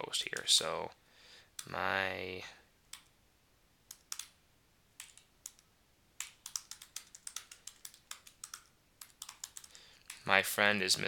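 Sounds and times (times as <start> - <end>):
typing on computer keyboard: 3.9 - 4.4, 5.0 - 5.6, 6.2 - 10.3.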